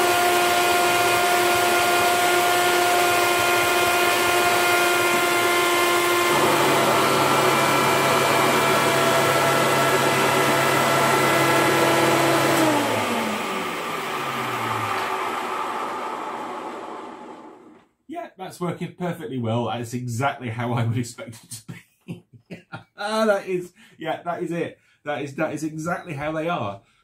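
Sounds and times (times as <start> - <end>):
vacuum cleaner whining: 0.0 - 17.9
vacuum cleaner winding down: 0.0 - 17.9.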